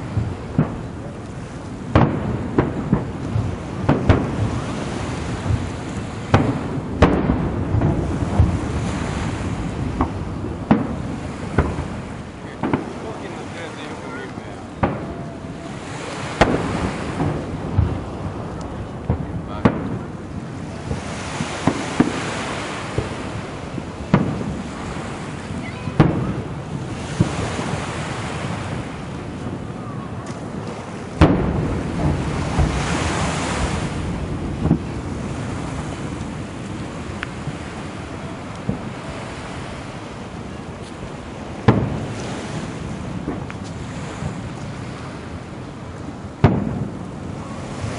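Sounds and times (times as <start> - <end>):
fireworks booming: 0.0 - 47.9
wind noise on microphone: 0.0 - 47.9.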